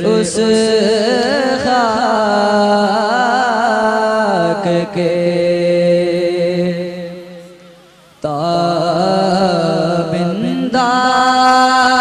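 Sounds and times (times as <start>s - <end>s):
boy singing into a microphone: 0.0s - 12.0s
short breath: 7.6s - 8.2s.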